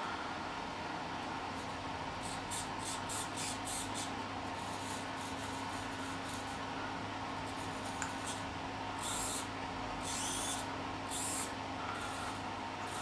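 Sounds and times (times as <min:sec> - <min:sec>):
steady low hum: 0:00.0 - 0:13.0
servo motors whirring: 0:09.0 - 0:13.0.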